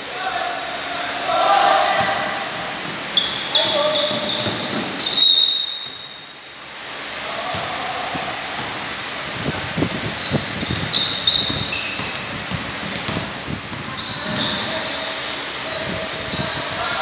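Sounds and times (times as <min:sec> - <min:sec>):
sneakers squeaking on court: 0:01.9 - 0:06.3, 0:07.4 - 0:16.5
basketball bouncing: 0:03.7 - 0:05.2, 0:07.5 - 0:08.8, 0:10.3 - 0:14.7.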